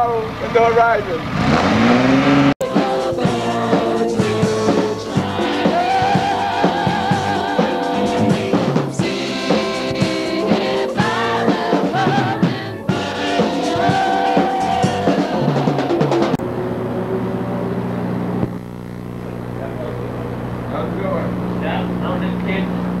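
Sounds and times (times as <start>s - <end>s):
woman singing: 2.6s - 16.1s
rock band playing live: 2.6s - 16.4s.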